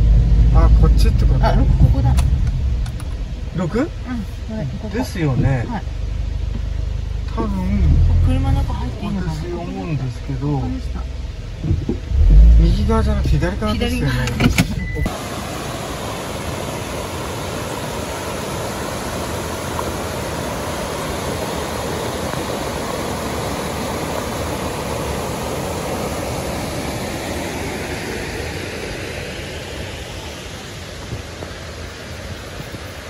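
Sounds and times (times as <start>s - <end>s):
river rushing over rocks: 15.1s - 33.0s.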